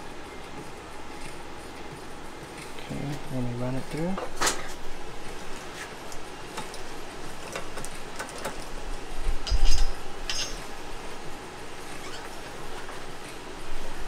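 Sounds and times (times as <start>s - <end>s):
metal tubing and rollers clicking: 7.4s - 10.9s
metallic ring: 9.4s - 10.8s.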